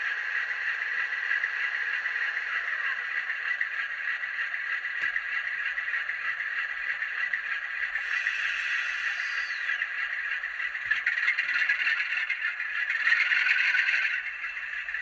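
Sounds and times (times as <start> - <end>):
falling whine: 0.0 - 15.0
tinny diesel engine idle drone: 0.0 - 15.0.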